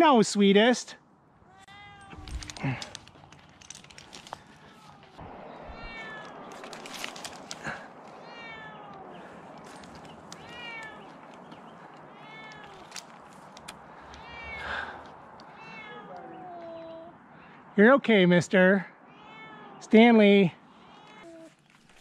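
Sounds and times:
cat meowing: 0:01.4 - 0:02.8, 0:04.6 - 0:06.7, 0:08.1 - 0:09.2, 0:10.3 - 0:11.2, 0:12.1 - 0:12.9, 0:14.2 - 0:17.6, 0:19.1 - 0:19.8.

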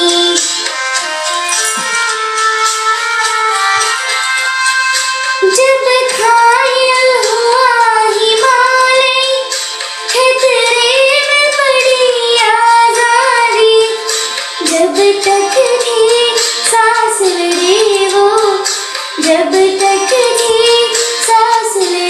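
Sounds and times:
girl singing: 0:00.0 - 0:00.7, 0:05.4 - 0:09.5, 0:10.1 - 0:22.0.

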